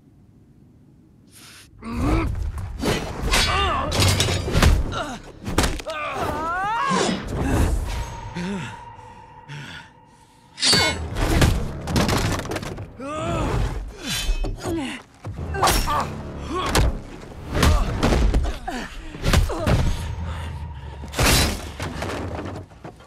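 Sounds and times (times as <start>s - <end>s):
grunts and groans of effort: 1.8s - 2.6s, 3.3s - 11.6s, 12.9s - 21.2s
film music score: 1.8s - 23.0s
sword blade strikes: 10.6s - 11.0s.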